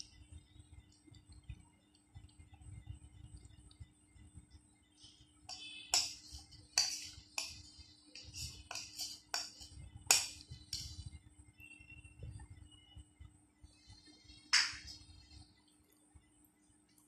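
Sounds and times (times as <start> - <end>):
metal spoon scraping plastic bowl: 5.5 - 11.2.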